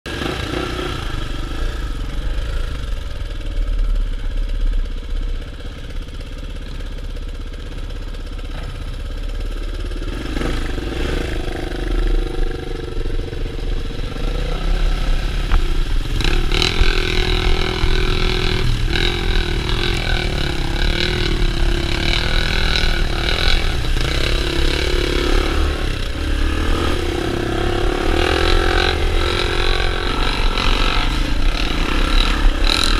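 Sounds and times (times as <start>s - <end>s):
dirt bike engine revving: 0.1s - 32.9s.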